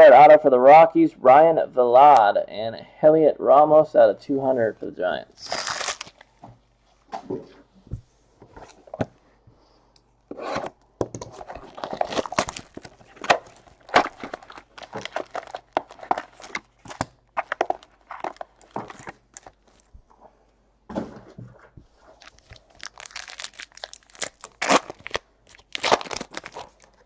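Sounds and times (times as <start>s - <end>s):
plastic shrink wrap crackling: 5.4s - 6.4s, 11.5s - 19.9s, 22.1s - 27.0s.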